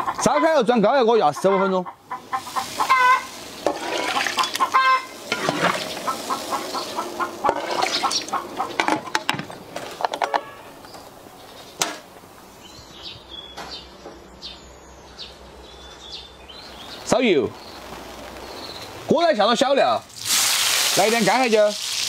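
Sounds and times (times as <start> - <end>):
chickens clucking: 0.0 - 11.1.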